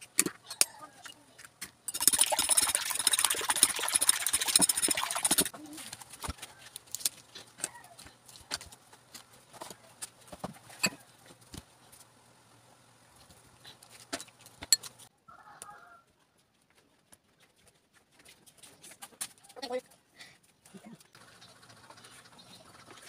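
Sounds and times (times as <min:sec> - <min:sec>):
fork beating eggs in bowl: 0:01.9 - 0:05.5.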